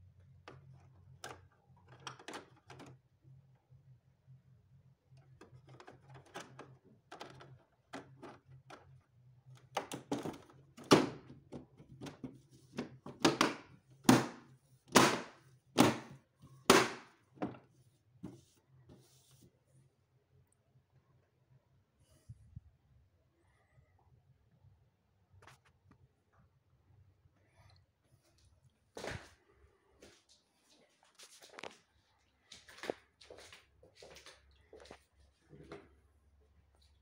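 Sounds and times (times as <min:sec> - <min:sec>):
faint low hum: 0:00.0 - 0:37.0
sharp plastic knocks: 0:13.1 - 0:17.6.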